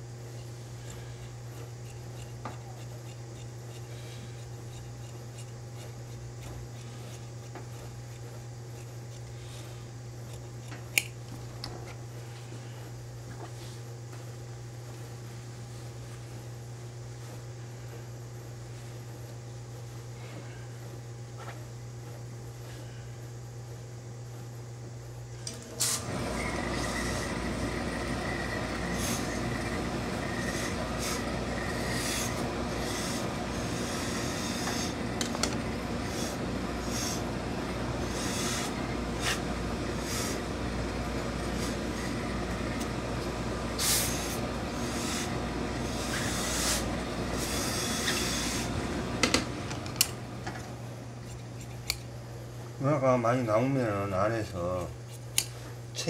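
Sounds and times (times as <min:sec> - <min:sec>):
steam iron hissing: 0:25.8 - 0:49.2
short spurts of steam: 0:43.8 - 0:45.3, 0:45.9 - 0:48.7.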